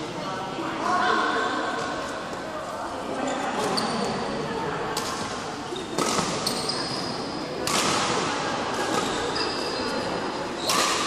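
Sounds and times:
shoes squeaking on court floor: 0:03.3 - 0:04.3, 0:05.7 - 0:07.4, 0:08.8 - 0:11.0
rackets hitting shuttlecock: 0:05.0 - 0:06.7, 0:07.6 - 0:09.3, 0:10.6 - 0:11.0.

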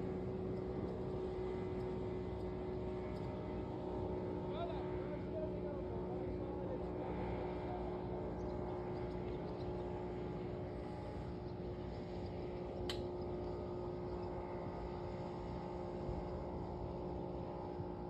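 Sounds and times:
motorboat engine droning: 0:00.0 - 0:18.0
sharp click: 0:12.8 - 0:13.1.

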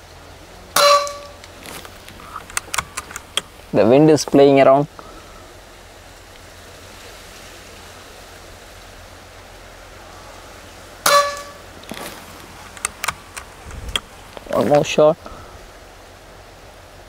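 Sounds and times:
wind hissing on microphone: 0:01.2 - 0:17.0.

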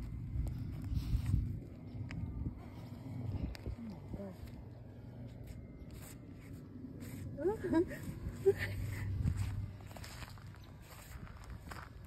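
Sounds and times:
wind rumble on microphone: 0:00.0 - 0:05.8, 0:07.2 - 0:12.0
footsteps on ice: 0:09.3 - 0:12.0.

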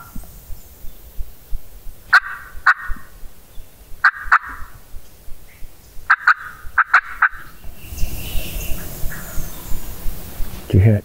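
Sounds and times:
turkeys gobbling: 0:01.2 - 0:10.7.

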